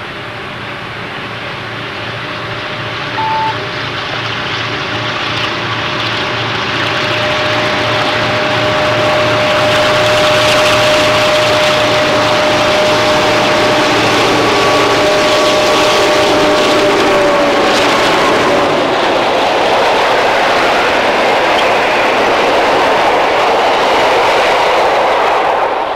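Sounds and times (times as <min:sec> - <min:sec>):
locomotive engine whine: 0:00.0 - 0:19.5
train wheels rolling on rails: 0:04.0 - 0:25.9.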